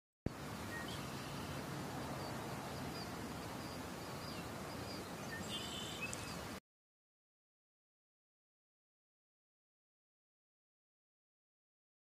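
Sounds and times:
outdoor ambient hiss: 0.3s - 6.6s
faint bird chirps: 0.7s - 1.6s, 2.2s - 6.5s.

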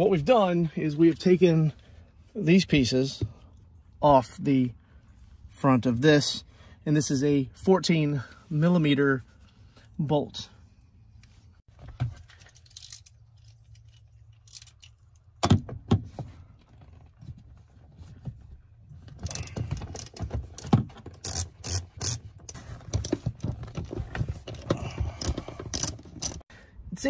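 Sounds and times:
socket ratchet clicking: 19.2s - 22.2s, 25.2s - 26.4s.

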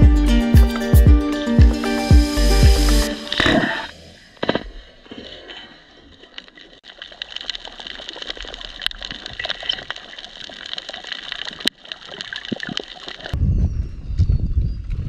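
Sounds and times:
water boiling and bubbling: 6.6s - 13.4s.

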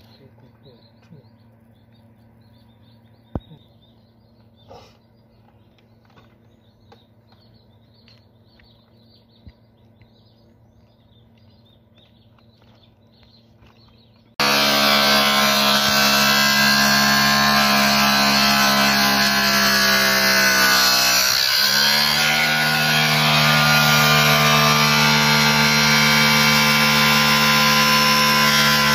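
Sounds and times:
birds chirping: 0.0s - 28.9s
angle grinder cutting metal: 14.4s - 28.9s.

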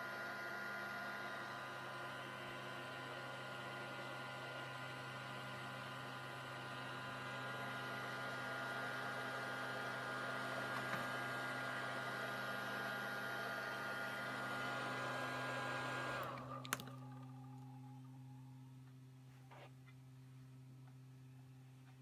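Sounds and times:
tesla coil hum and whine: 16.3s - 22.0s.

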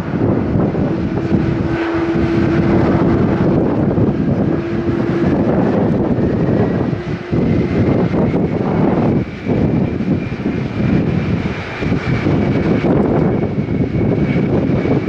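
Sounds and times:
high whine rising in pitch: 0.0s - 15.0s
jet engines roaring: 0.0s - 15.0s
wind buffeting microphone: 0.0s - 15.0s.

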